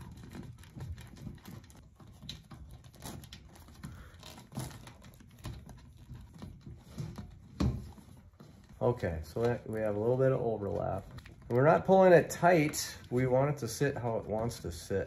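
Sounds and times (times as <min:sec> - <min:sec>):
vinyl tubing clicking and rubbing: 0:00.0 - 0:15.0.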